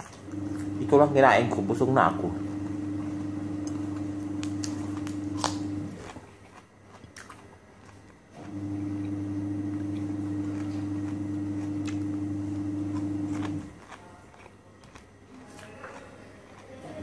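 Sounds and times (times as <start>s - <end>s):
chewing: 0.0s - 0.8s, 2.5s - 17.0s
steady low hum: 0.0s - 6.2s, 8.5s - 13.8s.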